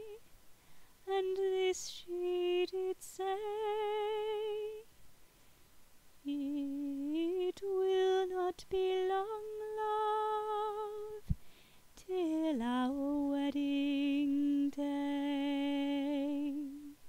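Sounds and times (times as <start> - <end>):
woman singing long notes: 0.0 - 0.2, 6.3 - 11.3, 12.0 - 17.0.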